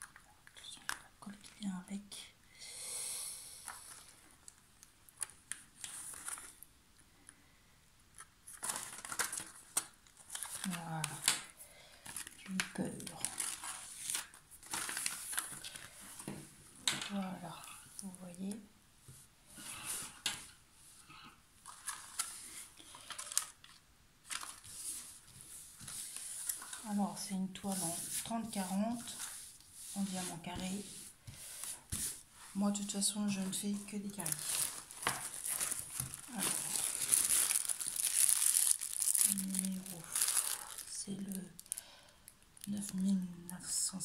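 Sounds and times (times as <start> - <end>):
paper rustling and crinkling: 5.2 - 6.6, 8.2 - 17.2, 21.6 - 41.9.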